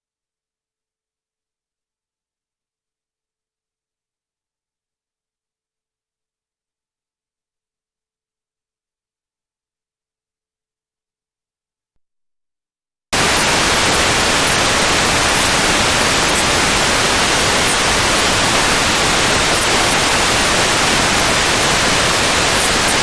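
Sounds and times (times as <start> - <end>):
loud static hiss: 13.2 - 23.0.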